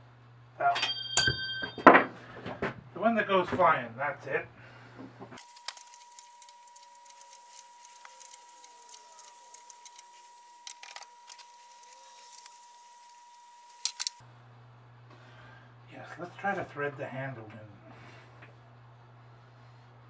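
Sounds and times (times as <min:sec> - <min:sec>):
metal parts clicking and clinking: 0:13.7 - 0:14.2.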